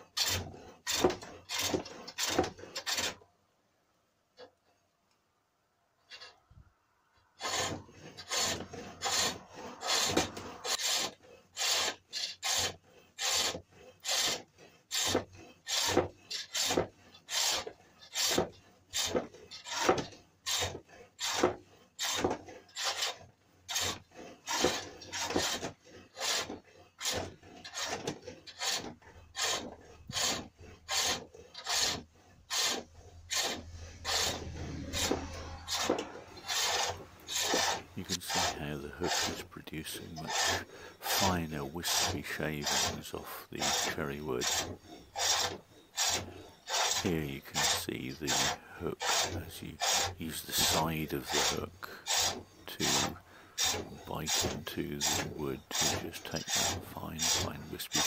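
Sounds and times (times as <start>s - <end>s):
hook tool rasping on wood: 0.0s - 3.2s, 7.4s - 58.0s.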